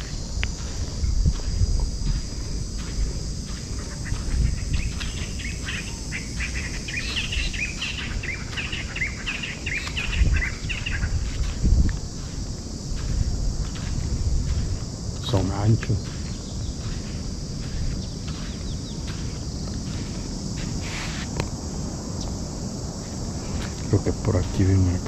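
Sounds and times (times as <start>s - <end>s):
insects buzzing: 0.0s - 25.0s
low rumbling and thumps: 11.0s - 15.2s.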